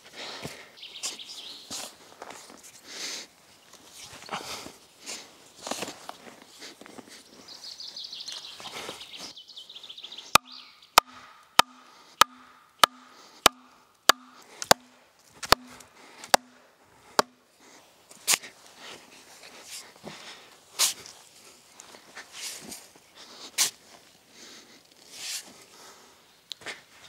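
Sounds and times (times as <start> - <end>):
wooden stake blows: 10.4 - 17.4.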